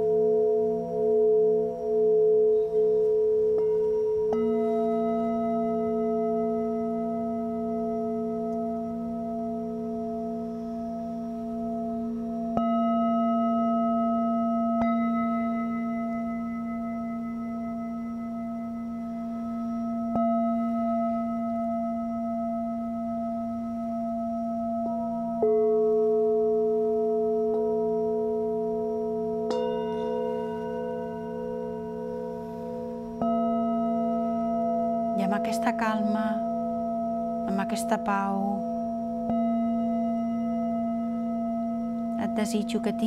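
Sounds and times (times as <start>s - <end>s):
singing bowls ringing: 0.0s - 43.0s.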